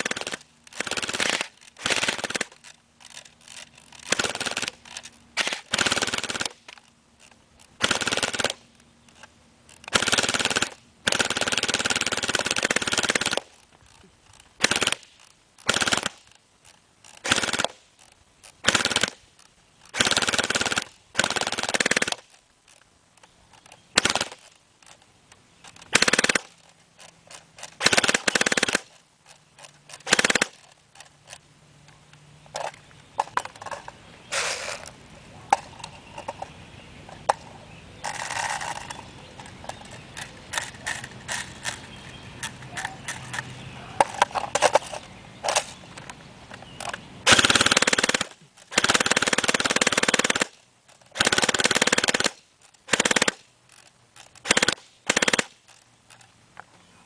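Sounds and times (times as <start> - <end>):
airsoft gun firing full-auto bursts: 0.0 - 2.6, 4.0 - 4.8, 5.4 - 6.6, 7.8 - 8.6, 9.9 - 13.5, 14.6 - 16.2, 17.2 - 17.8, 18.6 - 19.2, 19.9 - 22.2, 23.9 - 24.4, 25.9 - 26.5, 27.8 - 28.9, 30.0 - 30.6, 47.3 - 50.6, 51.2 - 53.4, 54.4 - 55.5.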